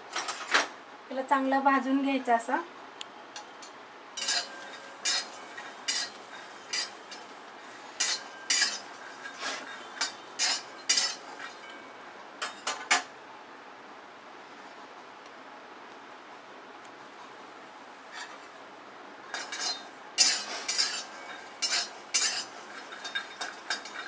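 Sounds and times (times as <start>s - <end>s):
metal spatula scraping a pan: 4.2s - 11.7s, 18.1s - 18.5s, 19.3s - 24.0s
beans rattling in a pan: 19.4s - 24.0s.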